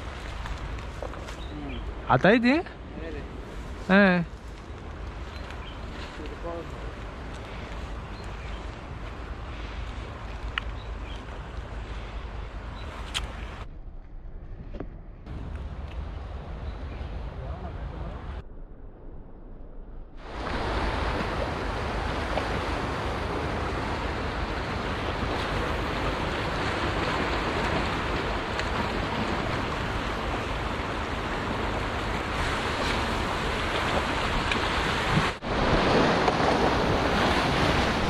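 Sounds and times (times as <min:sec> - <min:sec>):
wind rumble on microphone: 0:02.8 - 0:38.0
surf breaking on rocks: 0:20.2 - 0:38.0.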